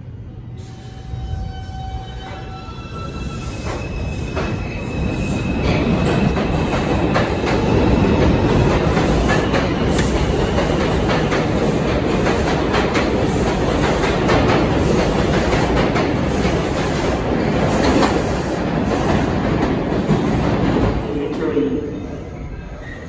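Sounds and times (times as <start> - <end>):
train wheels rumbling over rail joints: 3.6 - 21.1.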